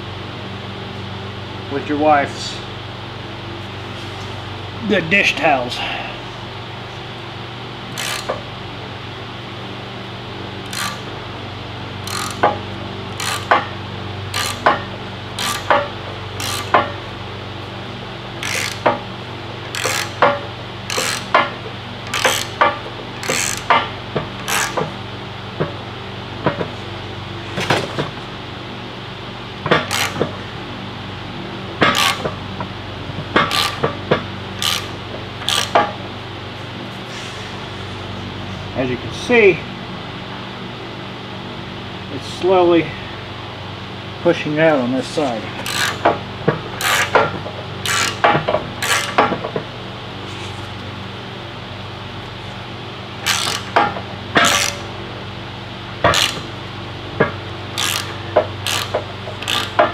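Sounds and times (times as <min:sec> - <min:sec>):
steady low hum: 0:00.0 - 0:59.9
ratchet clacking: 0:07.9 - 0:08.4, 0:10.6 - 0:11.1, 0:12.0 - 0:12.6, 0:13.2 - 0:13.7, 0:14.3 - 0:16.9, 0:18.4 - 0:19.0, 0:19.7 - 0:24.9, 0:29.7 - 0:30.3, 0:31.8 - 0:32.4, 0:33.4 - 0:34.0, 0:34.6 - 0:35.9, 0:45.6 - 0:46.2, 0:46.8 - 0:47.2, 0:47.8 - 0:49.2, 0:53.2 - 0:54.8, 0:56.1 - 0:56.5, 0:57.8 - 0:59.9.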